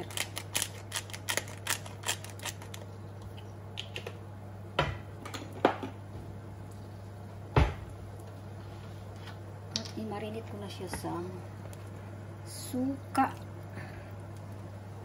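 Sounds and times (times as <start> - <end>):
pepper grinder clicking: 0.0 - 2.8
steady low hum: 0.0 - 15.0.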